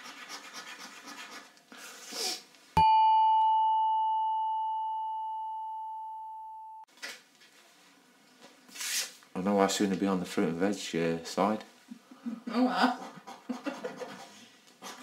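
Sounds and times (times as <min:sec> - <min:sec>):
clear chime ding: 0:02.8 - 0:06.9.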